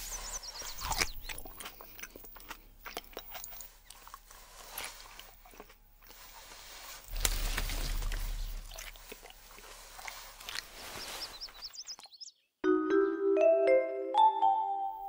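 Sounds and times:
crunchy chewing: 0:00.0 - 0:12.2
low rumbling noise: 0:07.0 - 0:10.9.

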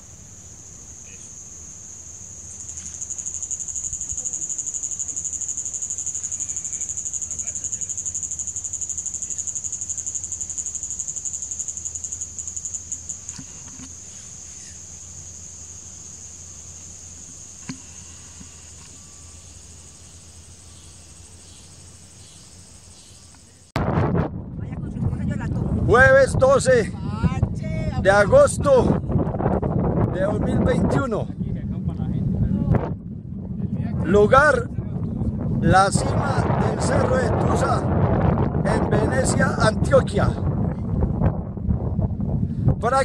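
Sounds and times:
insect fast-pulsing trill: 0:00.0 - 0:23.7.

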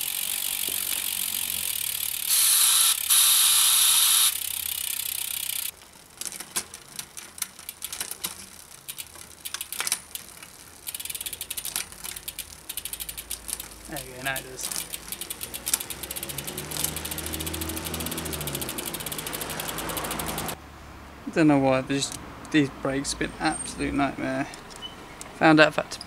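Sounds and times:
bicycle chain rattling: 0:00.0 - 0:20.6
freewheel ratcheting: 0:00.0 - 0:20.6
gear shifting clicks: 0:04.3 - 0:20.6.

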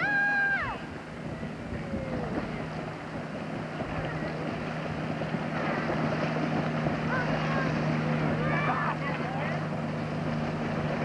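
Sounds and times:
motorboat engine running: 0:00.0 - 0:11.0
wind on microphone: 0:00.0 - 0:11.0.

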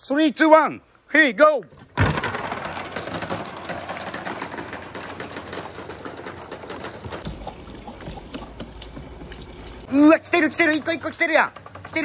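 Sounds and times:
balls clattering down wooden ramp: 0:01.7 - 0:07.2, 0:10.2 - 0:12.0
balls splashing into water: 0:07.2 - 0:09.9.

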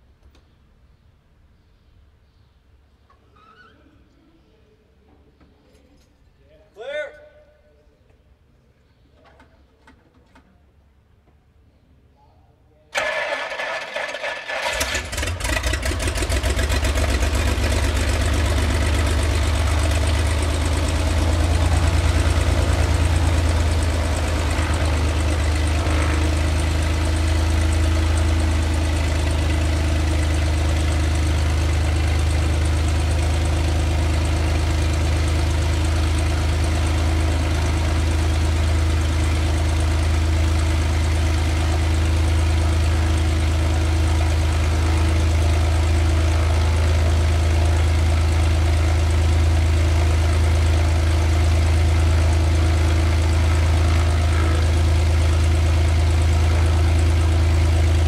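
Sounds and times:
propeller plane engine idling: 0:13.0 - 0:58.0.

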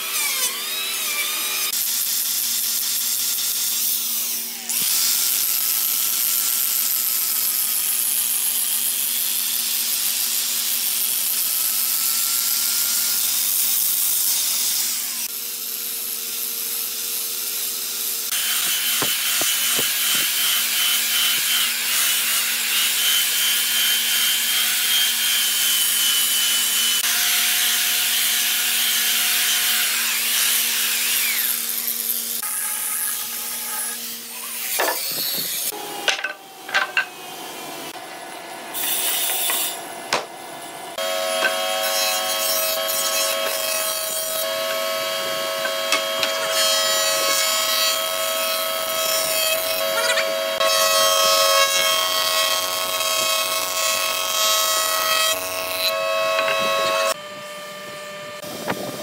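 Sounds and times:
belt sander on wood: 0:17.3 - 0:36.0, 0:41.0 - 0:57.2
angle grinder sanding wood: 0:17.6 - 0:38.0, 0:41.0 - 0:57.2.

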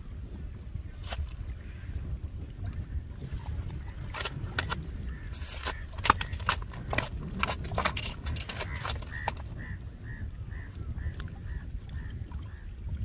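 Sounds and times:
wind on microphone: 0:00.0 - 0:13.0
fish slapping on rocks: 0:01.0 - 0:01.5, 0:03.5 - 0:09.6.

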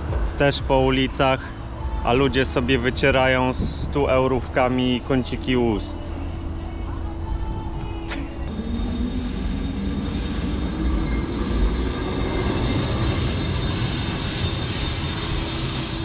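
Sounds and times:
low motor whine: 0:00.0 - 0:16.0
tram rumbling on rails: 0:07.9 - 0:16.0.

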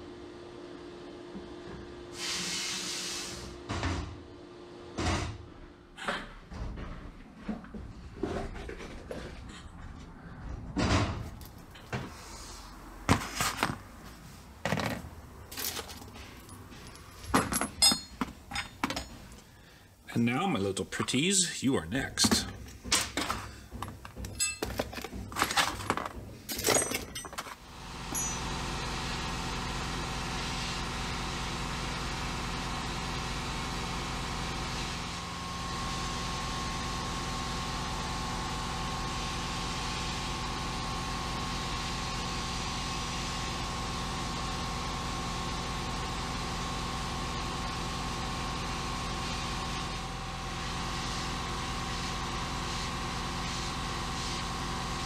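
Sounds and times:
sandblast cabinet hissing: 0:02.1 - 0:03.6, 0:48.7 - 0:55.0
metal parts clinking: 0:14.8 - 0:19.2, 0:24.3 - 0:28.4.

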